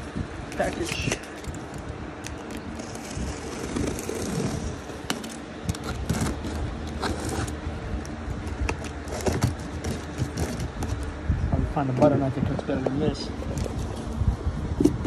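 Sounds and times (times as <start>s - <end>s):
cardboard rustling: 2.4s - 7.6s, 8.8s - 11.1s.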